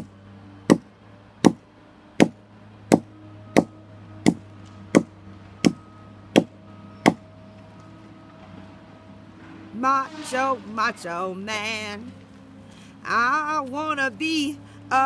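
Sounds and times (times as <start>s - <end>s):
axe chopping log: 2.2s - 5.8s, 6.4s - 7.2s.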